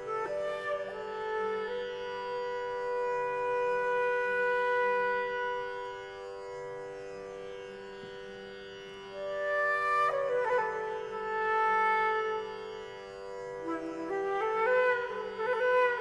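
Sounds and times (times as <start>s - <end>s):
flute long note: 0.0s - 6.0s, 9.3s - 12.7s, 13.6s - 16.0s.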